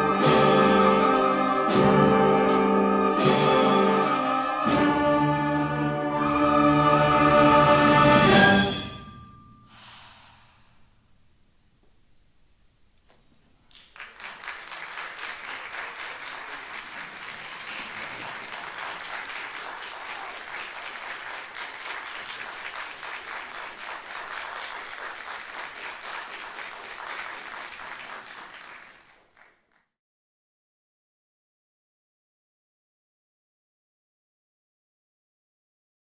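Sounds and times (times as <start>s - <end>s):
audience applauding: 13.7s - 29.9s.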